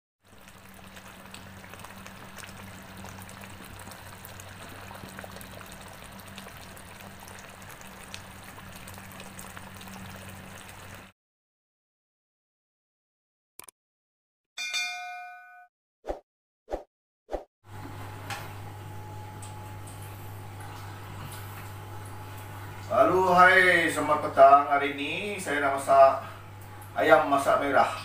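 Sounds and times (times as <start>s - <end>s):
gravy bubbling and spitting: 0.2s - 11.1s
steady low hum: 17.7s - 28.0s.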